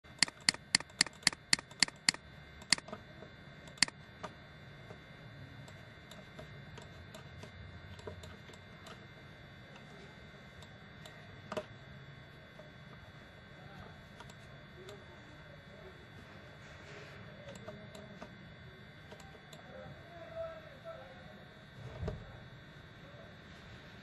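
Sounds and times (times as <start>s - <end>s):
computer mouse clicking: 0.1s - 2.9s, 3.7s - 4.4s, 19.1s - 19.6s.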